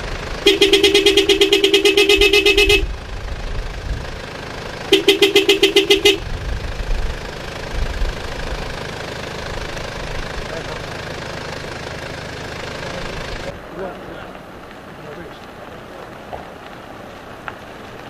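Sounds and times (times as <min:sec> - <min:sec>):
vehicle horn stuttering pulses: 0:00.0 - 0:03.3, 0:04.7 - 0:06.5
low rumble of engines: 0:00.0 - 0:18.0.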